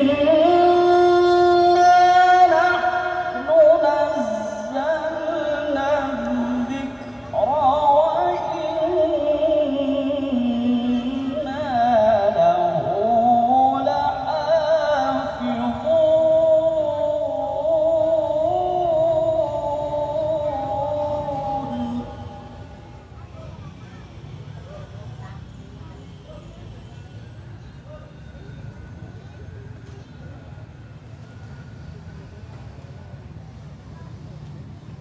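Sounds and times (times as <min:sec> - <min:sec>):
man chanting recitation over loudspeaker: 0:00.0 - 0:22.8.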